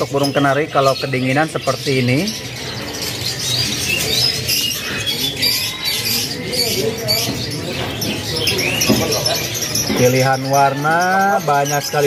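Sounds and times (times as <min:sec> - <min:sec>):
canaries chirping: 0:00.0 - 0:12.0
murmur of voices: 0:00.0 - 0:12.0.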